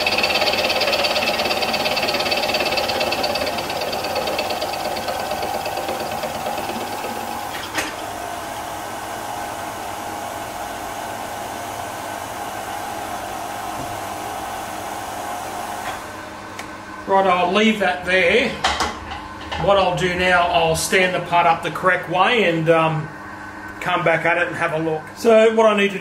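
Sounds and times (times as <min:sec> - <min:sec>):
milling machine cutting whine: 0:00.0 - 0:08.1.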